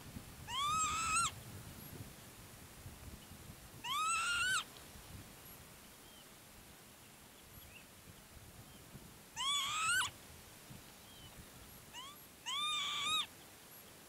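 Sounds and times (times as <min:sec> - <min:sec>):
lapwing calling: 0:00.5 - 0:01.4, 0:03.8 - 0:04.7, 0:09.4 - 0:10.2, 0:11.9 - 0:13.3.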